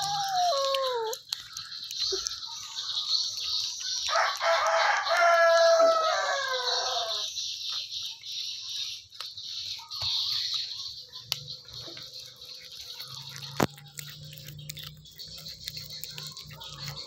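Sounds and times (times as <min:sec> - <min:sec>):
cat chewing raw meat: 0:00.0 - 0:17.0
bone cracking: 0:04.0 - 0:06.2, 0:12.6 - 0:17.0.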